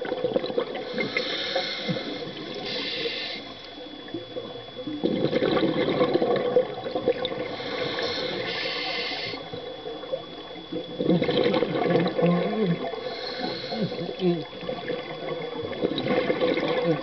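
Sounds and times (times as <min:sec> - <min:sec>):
exhaled bubbles underwater: 0:00.0 - 0:17.0
regulator breathing hiss: 0:00.8 - 0:03.7, 0:07.5 - 0:09.5, 0:13.0 - 0:14.2.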